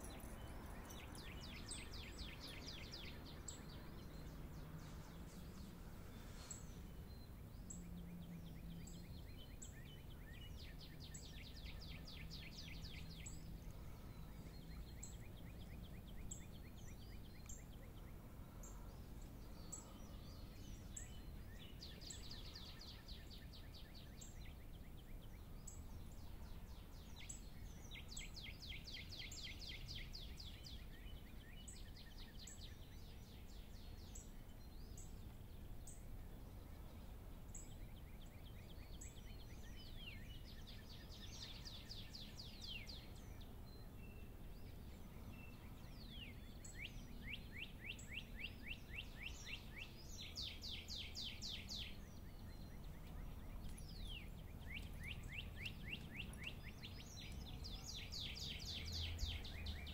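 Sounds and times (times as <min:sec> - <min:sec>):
bird trill: 0:45.5 - 0:59.9.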